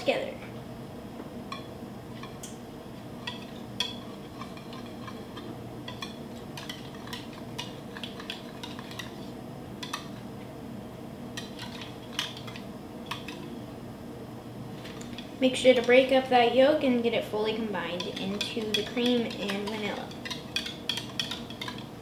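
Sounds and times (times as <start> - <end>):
whisk clinking against jug: 18.0 - 22.0.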